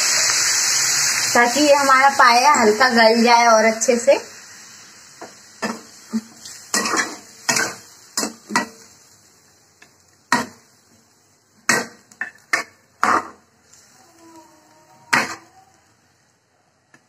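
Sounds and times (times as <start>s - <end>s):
metal spatula scraping a pan: 5.6s - 8.9s.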